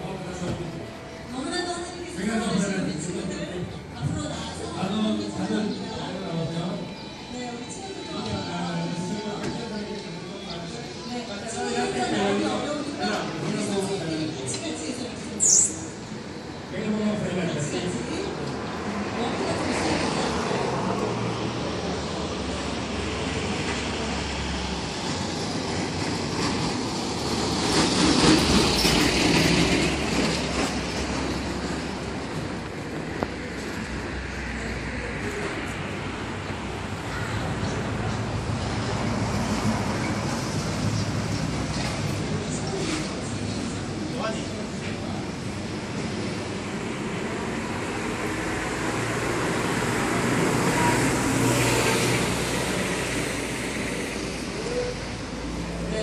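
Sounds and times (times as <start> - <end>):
truck passing rumble: 45.2 - 56.0.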